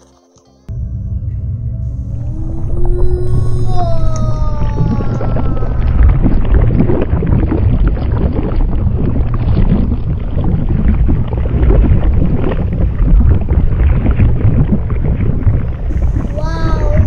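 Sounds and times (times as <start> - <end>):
foaming crackling fizz: 4.5 - 17.0.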